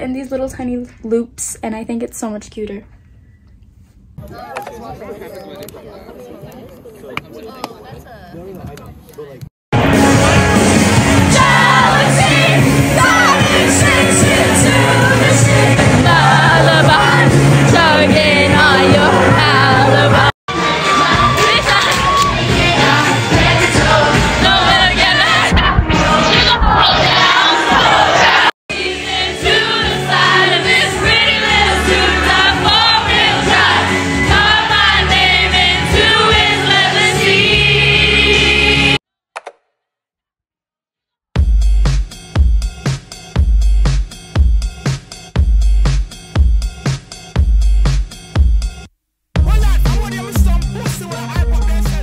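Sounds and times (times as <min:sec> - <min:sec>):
pop music with singing: 0:09.8 - 0:39.0, 0:49.4 - 0:52.0
crowd singing along: 0:10.1 - 0:39.0
people shouting and whooping: 0:20.5 - 0:22.6.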